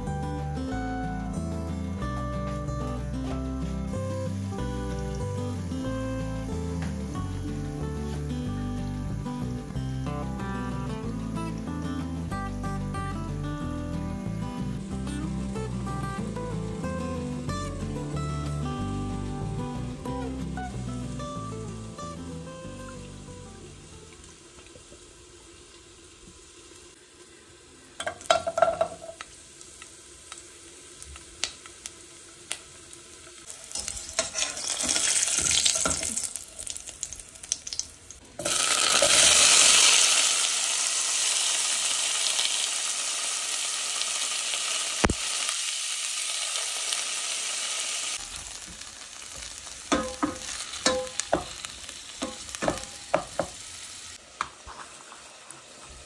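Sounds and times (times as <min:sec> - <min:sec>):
garlic sizzling in oil: 0:00.0 - 0:56.0
stirring clinks: 0:49.9 - 0:51.5
slices clinking into pan: 0:49.9 - 0:51.6.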